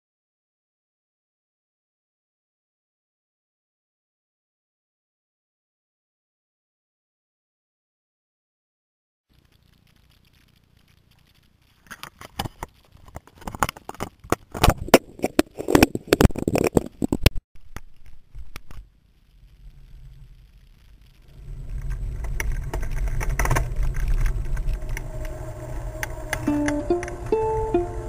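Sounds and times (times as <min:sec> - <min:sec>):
bike rolling over brick pavement: 0:09.4 - 0:27.7.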